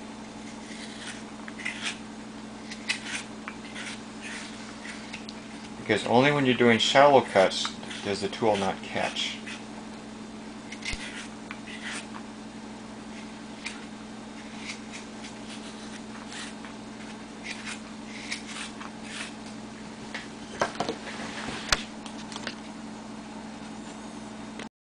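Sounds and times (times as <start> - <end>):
knife scraping wood: 0.3 - 2.0, 2.6 - 9.7, 10.6 - 12.2, 13.0 - 19.5.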